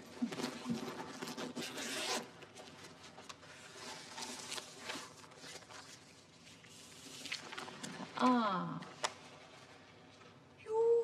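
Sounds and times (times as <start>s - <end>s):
paper rustling: 0.0s - 8.2s
bag zipper pulled open: 1.5s - 2.3s.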